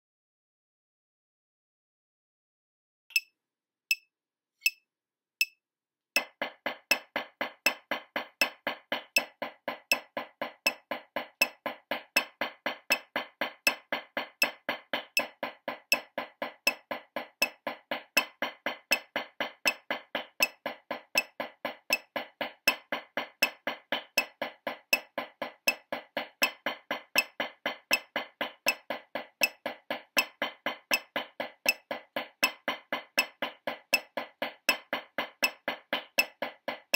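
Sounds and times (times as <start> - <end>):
drumsticks on practice pad: 6.2 - 36.9
sharp count-off clicks: 6.2 - 36.9.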